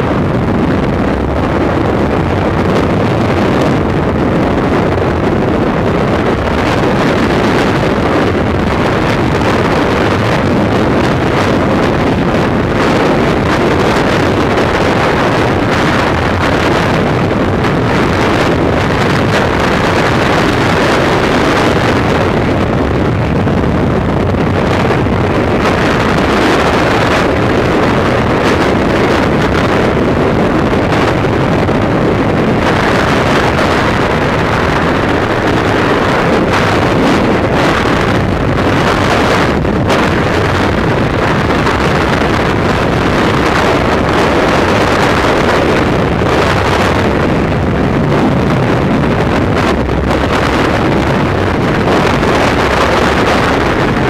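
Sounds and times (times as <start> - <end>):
freefall wind rushing over microphone: 0.0 - 54.0.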